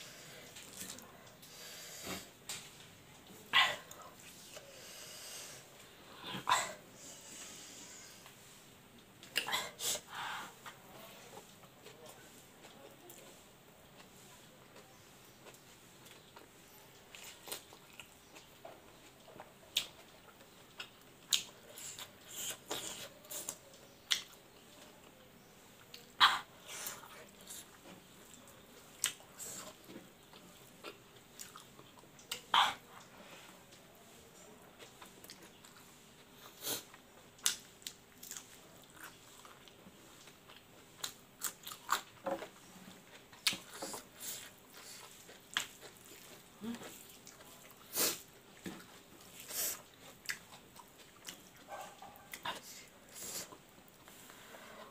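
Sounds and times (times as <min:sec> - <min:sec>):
close-up chewing: 0:10.6 - 0:25.2, 0:25.8 - 0:54.9.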